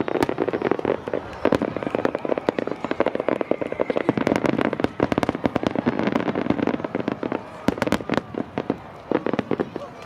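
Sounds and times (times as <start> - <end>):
continuous crackling rumble: 0.0 - 10.0.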